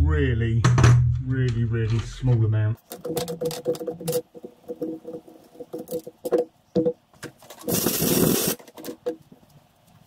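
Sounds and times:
metal clicks and knocks: 1.9s - 7.6s
loud hiss: 7.6s - 8.6s.

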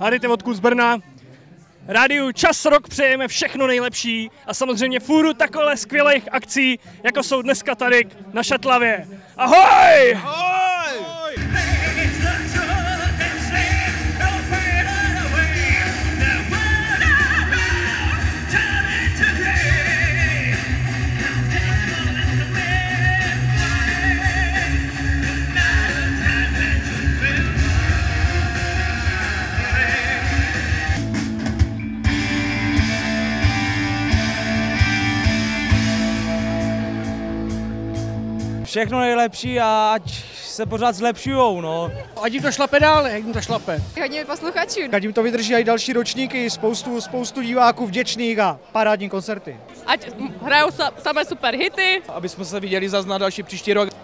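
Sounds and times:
man singing: 11.4s - 31.0s
live rock band: 11.4s - 38.7s.

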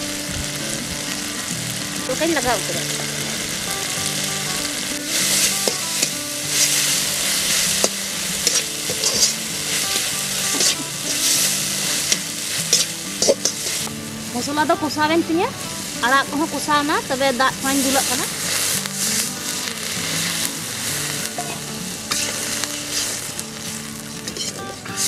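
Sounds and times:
fish sizzling in a wok: 0.0s - 25.0s
metal spatula scraping a pan: 5.0s - 13.9s, 17.7s - 25.0s.

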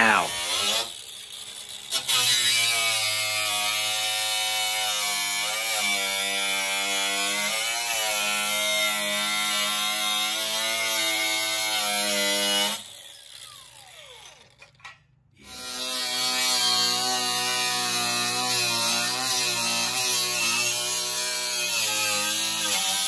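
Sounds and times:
angle grinder cutting metal: 0.0s - 23.0s.

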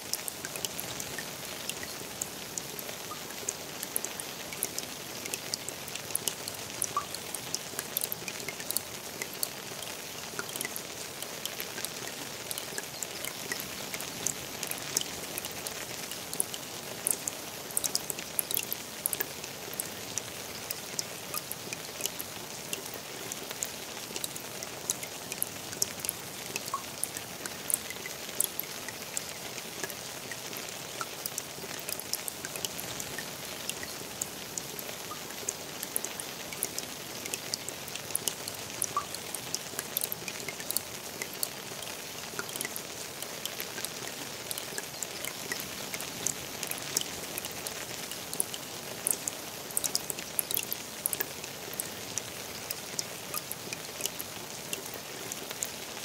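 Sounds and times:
sharp water drop ticks: 0.0s - 55.8s
rain falling on pond water: 0.0s - 56.0s.

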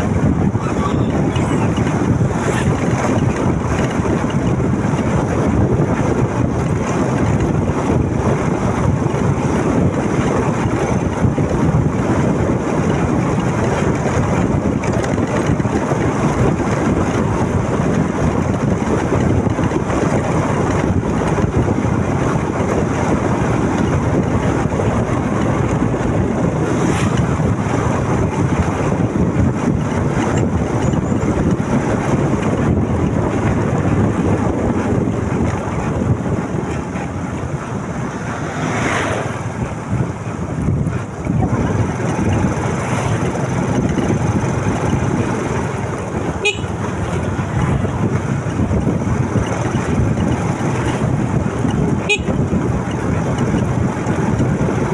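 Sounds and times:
motorcycle running: 0.0s - 54.9s
road noise: 0.0s - 54.9s
wind rush on microphone: 0.0s - 54.9s.

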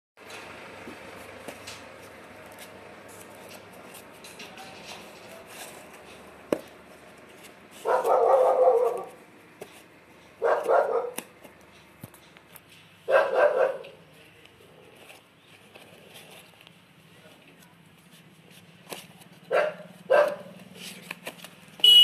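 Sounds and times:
dog barking: 7.8s - 9.2s, 10.4s - 11.2s, 13.1s - 14.0s, 19.5s - 20.6s.

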